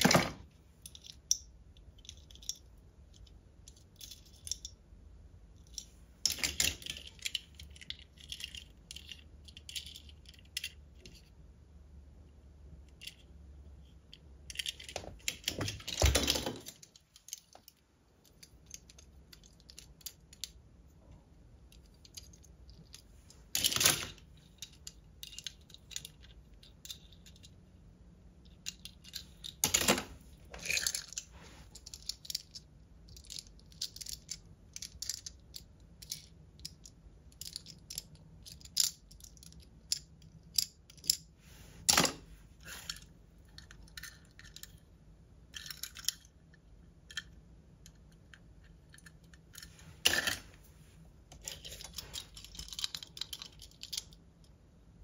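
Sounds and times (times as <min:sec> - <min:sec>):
toy cars clicking and clinking: 0:00.1 - 0:04.8, 0:05.6 - 0:11.3, 0:14.0 - 0:20.6, 0:21.7 - 0:27.6, 0:28.4 - 0:41.3, 0:45.5 - 0:46.5, 0:47.1 - 0:50.5, 0:51.3 - 0:54.2.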